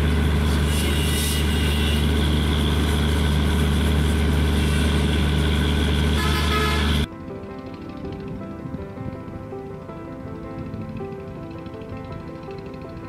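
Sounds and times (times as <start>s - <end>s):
locomotive engine humming: 0.0s - 13.0s
soft music: 6.2s - 13.0s.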